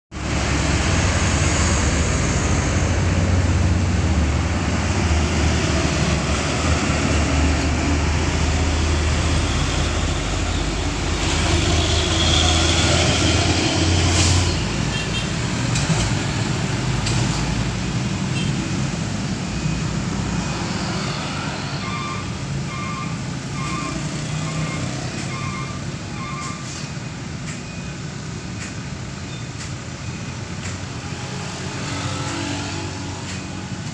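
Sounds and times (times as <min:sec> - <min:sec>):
street traffic: 0:00.1 - 0:33.9
truck engine rumbling: 0:00.2 - 0:33.9
short electronic beeps: 0:19.5 - 0:30.5.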